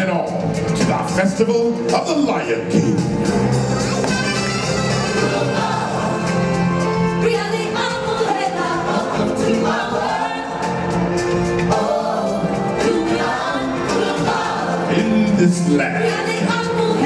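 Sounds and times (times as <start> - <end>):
musical accompaniment: 0.0 - 17.0
choir singing: 3.5 - 17.0.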